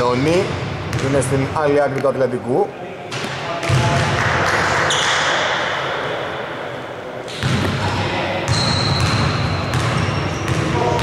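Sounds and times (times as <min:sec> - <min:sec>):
indistinct voices echoing: 0:00.0 - 0:11.0
basketball bouncing on hardwood: 0:09.0 - 0:10.6.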